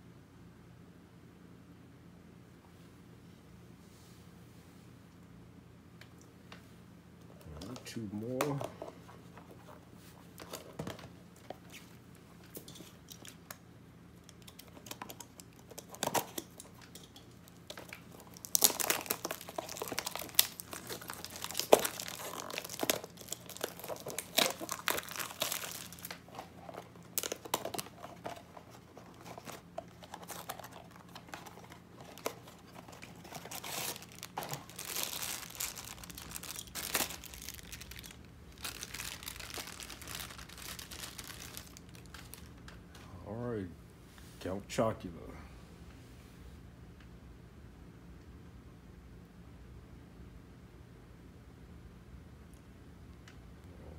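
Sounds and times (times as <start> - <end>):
foil bag crinkling: 14.3 - 42.7.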